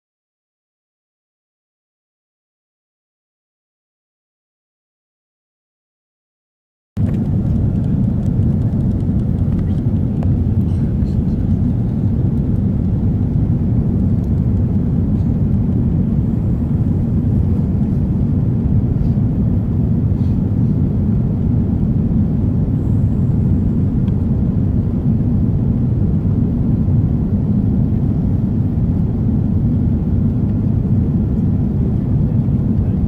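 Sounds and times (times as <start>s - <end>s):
airplane cabin engine rumble: 7.0s - 33.0s.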